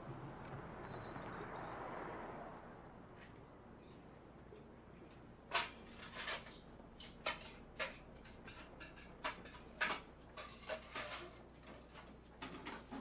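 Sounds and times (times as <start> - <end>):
dishes and cutlery clinking: 5.5 - 12.8.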